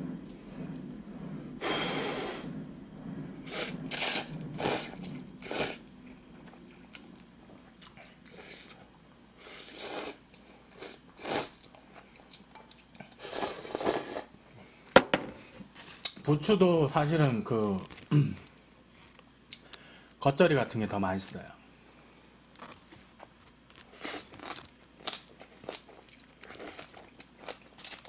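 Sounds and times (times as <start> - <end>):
slurping broth: 1.6 - 5.8, 9.4 - 11.8, 13.2 - 14.3
quiet chewing: 2.9 - 9.3
person slurping noodles: 3.4 - 5.8, 9.4 - 11.6.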